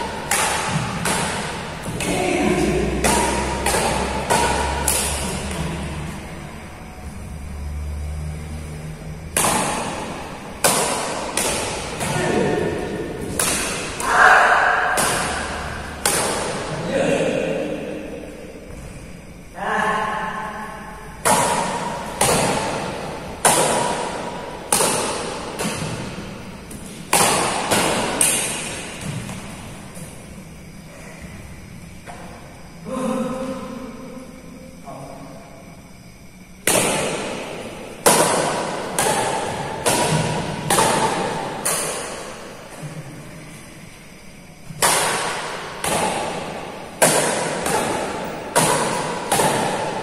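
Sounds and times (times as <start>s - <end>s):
rackets striking shuttlecock: 0.0s - 6.3s, 9.2s - 16.8s, 21.1s - 30.2s, 36.6s - 42.6s, 44.6s - 50.0s.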